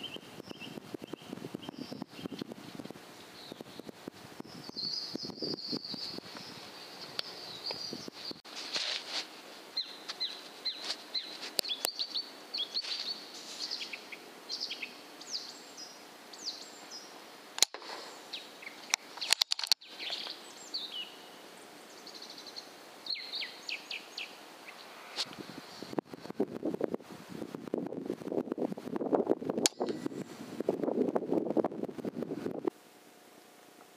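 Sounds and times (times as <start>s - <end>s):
small birds chirping: 0.0s - 8.5s, 9.6s - 26.1s.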